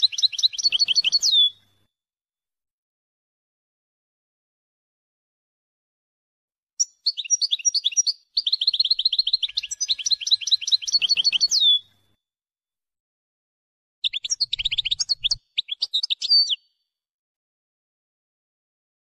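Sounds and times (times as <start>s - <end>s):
goldfinch song with high chirps: 0.0s - 1.7s, 6.8s - 11.9s, 14.0s - 16.8s.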